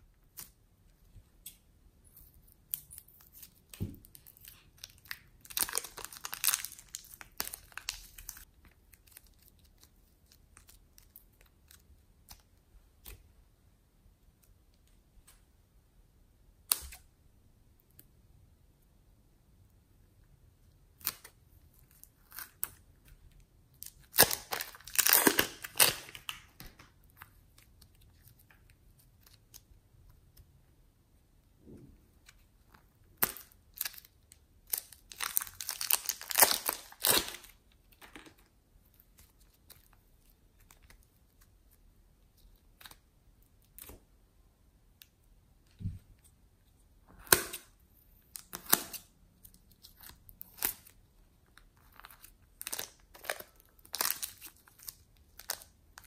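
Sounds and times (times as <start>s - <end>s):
plastic bags crinkling: 5.0s - 8.4s.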